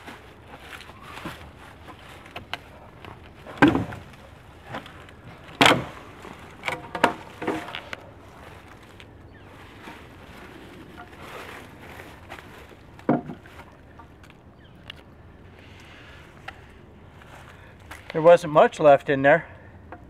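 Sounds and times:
tree limb cracking: 0:00.0 - 0:15.1
small wood snaps and knocks: 0:02.2 - 0:08.0, 0:13.0 - 0:15.1.

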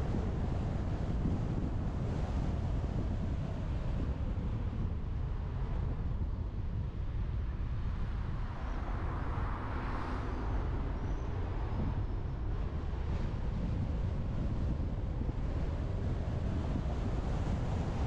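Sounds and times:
road noise: 0:00.0 - 0:18.0
wind rumble on microphone: 0:00.0 - 0:18.0.

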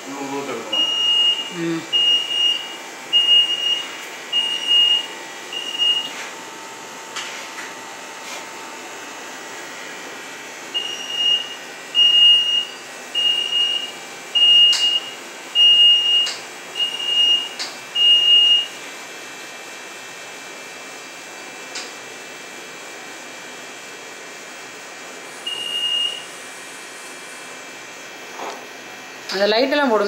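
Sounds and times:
short high warning beeps: 0:00.7 - 0:06.2, 0:10.8 - 0:18.7, 0:25.5 - 0:26.3.

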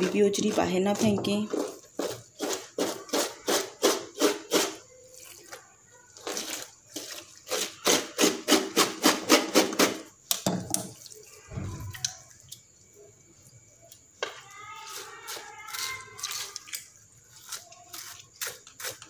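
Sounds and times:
knife scraping wet tripe: 0:00.0 - 0:05.6, 0:14.8 - 0:19.0.

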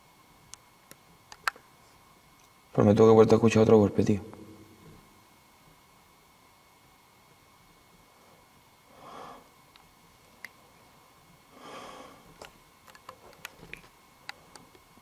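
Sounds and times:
small sharp clicks: 0:00.5 - 0:01.6
person breathing heavily: 0:08.2 - 0:09.6, 0:11.5 - 0:12.4.

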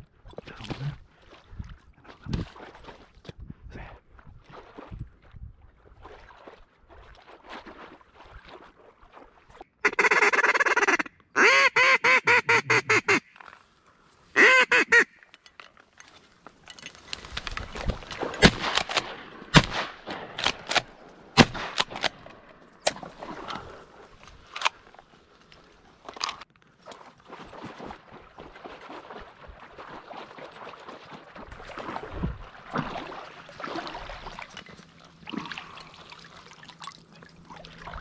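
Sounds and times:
duck call quacks: 0:09.8 - 0:13.4, 0:14.4 - 0:15.2
reed stalks rustling and snapping: 0:15.2 - 0:27.9.

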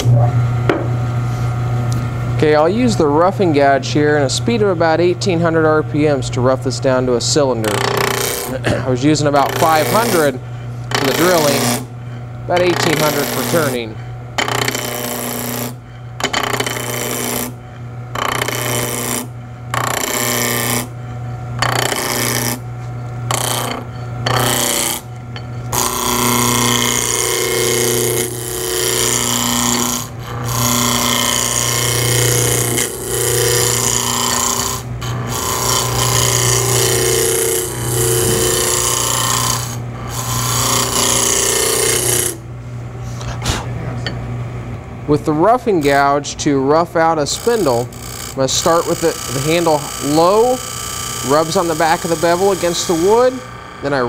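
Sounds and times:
lathe motor hum: 0:00.0 - 0:54.0
gouge cutting wood: 0:07.0 - 0:42.4, 0:47.0 - 0:54.0.

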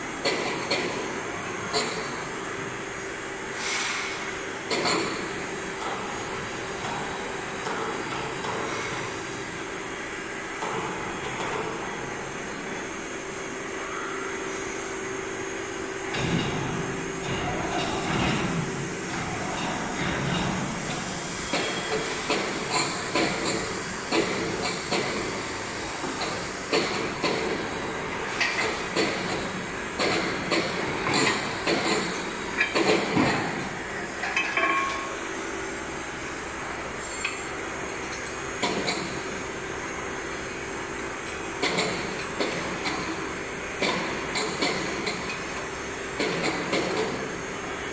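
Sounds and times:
steady machine hum: 0:00.0 - 0:47.9
metal clinks and knocks: 0:34.2 - 0:35.1.

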